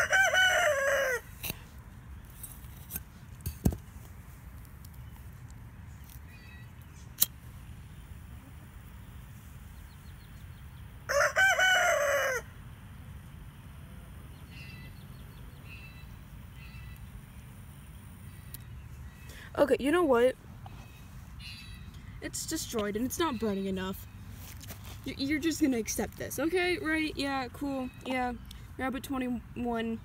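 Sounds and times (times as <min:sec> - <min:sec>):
rooster crowing: 0:00.0 - 0:01.4, 0:11.1 - 0:12.6
low outdoor background: 0:00.0 - 0:30.0.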